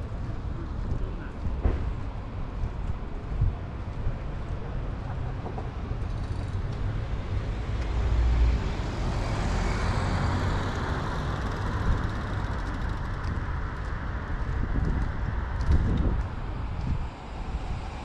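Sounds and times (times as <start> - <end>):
vehicle driving past: 7.2 - 13.1.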